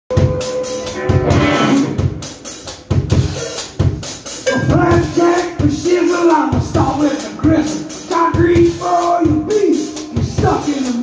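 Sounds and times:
sliding electric guitar notes: 0.1s - 2.3s
blues rock band playing: 0.1s - 11.0s
drum kit steady beat: 0.1s - 11.0s.

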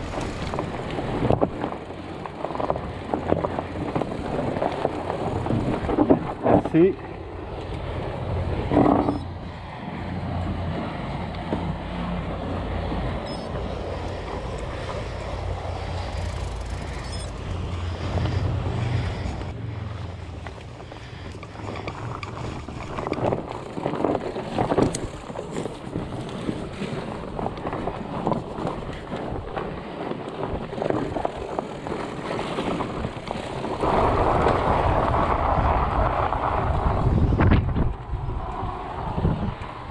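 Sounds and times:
wind on microphone: 0.0s - 7.1s, 8.2s - 39.9s
bike tyres on dirt trail: 0.0s - 39.9s
low steady drone: 5.3s - 22.8s.

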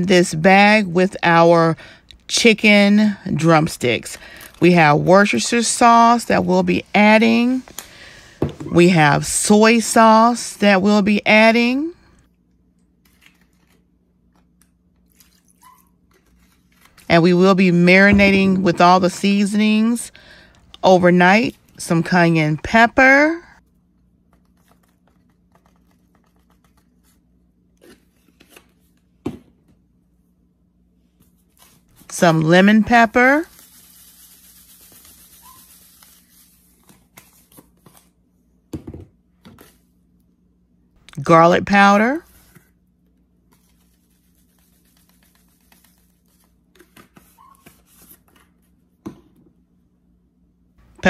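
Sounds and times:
low steady hum: 0.0s - 35.1s
seasoning shaken in a bag: 33.5s - 36.5s.

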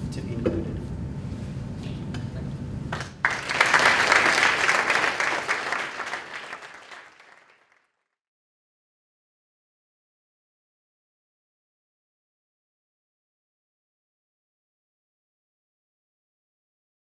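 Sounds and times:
low room noise: 0.0s - 7.8s
audience applause: 3.0s - 8.0s.

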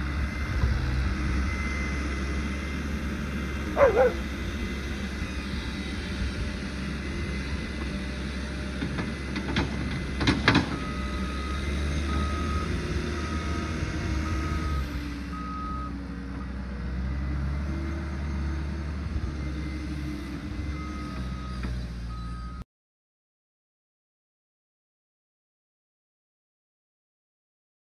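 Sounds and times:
diesel engine running: 0.0s - 22.6s
reversing alarm beeping: 10.7s - 16.0s, 20.6s - 22.6s.

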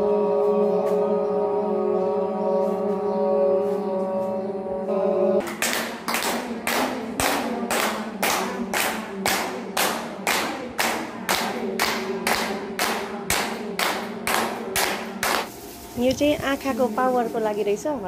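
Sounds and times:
people clapping in unison: 5.4s - 15.5s.

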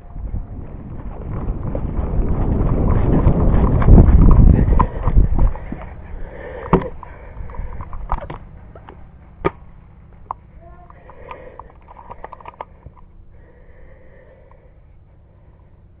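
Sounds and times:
running footsteps on grass: 0.0s - 6.1s
microphone thumping and rumble: 0.0s - 10.3s.

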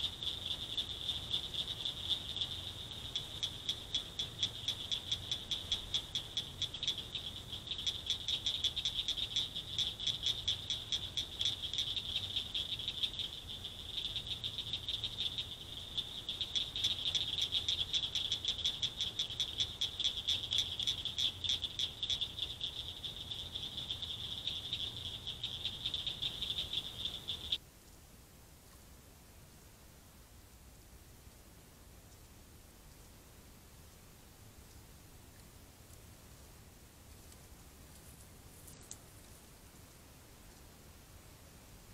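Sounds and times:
frogs chorus pulsing: 0.0s - 27.6s.

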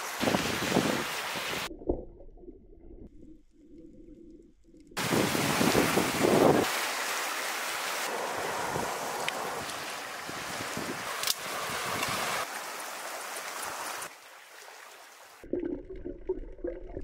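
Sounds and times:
sea noise: 0.0s - 2.0s, 5.0s - 17.0s
wind buffeting microphone: 5.0s - 6.7s, 8.4s - 12.4s.

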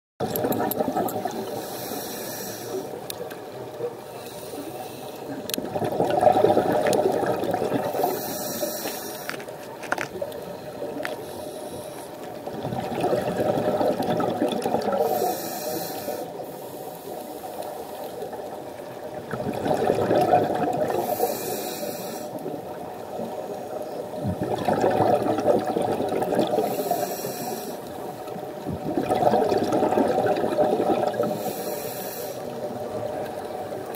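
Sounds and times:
rush of exhaled bubbles: 0.2s - 2.0s, 5.3s - 8.6s, 12.4s - 15.4s, 18.2s - 21.3s, 24.1s - 27.4s, 28.4s - 31.5s
diver inhaling through regulator: 1.4s - 3.0s, 4.1s - 5.4s, 7.8s - 9.5s, 15.0s - 18.0s, 20.9s - 22.5s, 26.5s - 28.0s, 31.1s - 32.6s.

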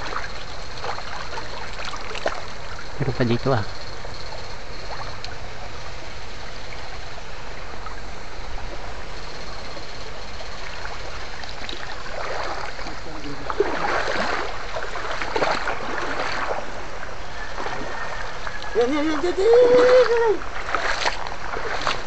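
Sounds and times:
splashing of wading: 0.0s - 22.0s
stream running over rocks: 0.0s - 22.0s.

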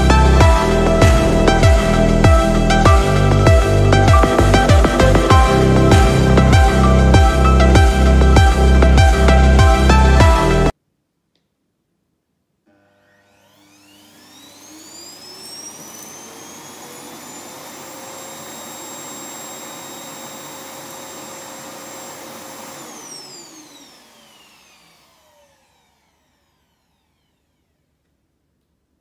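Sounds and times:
suction motor whine and air rush: 13.3s - 27.8s.

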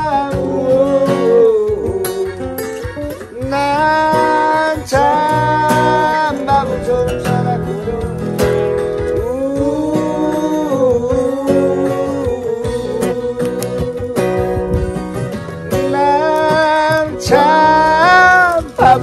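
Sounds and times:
acoustic guitar: 0.0s - 19.0s
person singing long notes: 9.2s - 15.0s, 15.8s - 19.0s.

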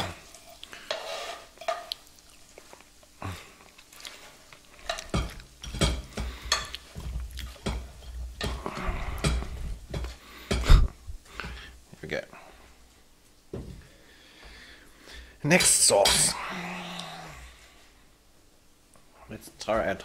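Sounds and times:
frying pan scraping a ceramic plate: 0.0s - 1.9s.

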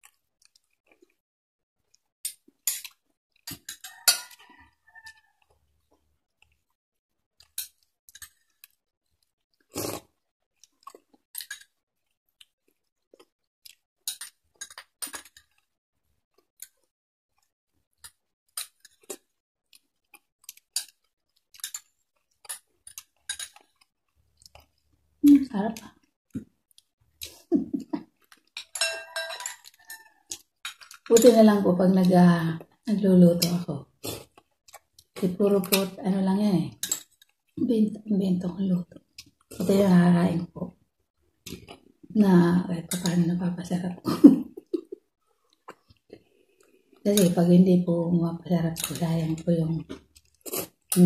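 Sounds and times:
person chewing: 0.0s - 1.2s, 7.4s - 25.0s, 25.8s - 28.8s, 29.5s - 31.1s, 33.9s - 35.8s, 41.4s - 42.1s, 44.6s - 47.0s, 49.9s - 51.0s
spoon clinking on glass bowl: 28.6s - 30.1s.

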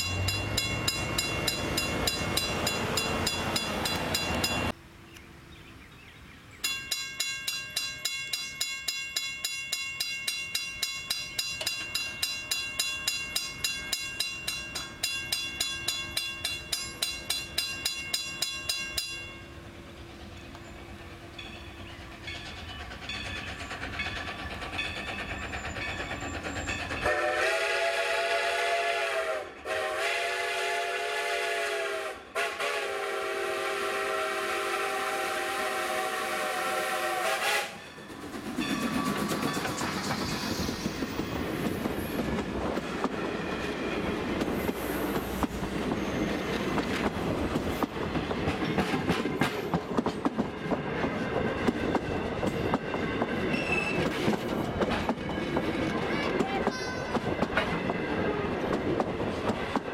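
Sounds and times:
wheels clicking over rail joints: 0.0s - 4.8s, 6.6s - 19.4s, 20.1s - 27.2s, 37.8s - 59.9s
train rumbling past: 0.0s - 59.9s
steam whistle blasts: 27.0s - 37.8s.

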